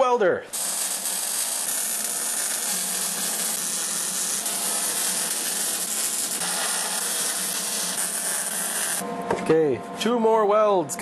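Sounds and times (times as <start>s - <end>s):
welding arc crackling: 0.5s - 9.0s.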